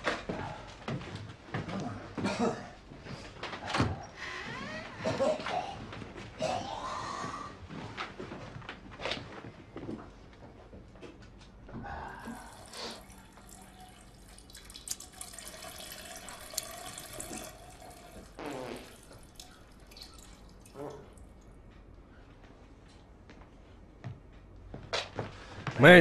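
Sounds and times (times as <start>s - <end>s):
tap water running into sink: 12.4s - 20.8s
man's voice: 25.8s - 26.0s.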